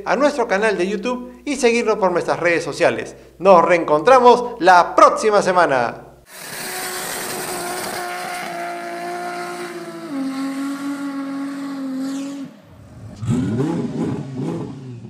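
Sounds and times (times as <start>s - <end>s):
race car engine revving: 6.3s - 15.0s.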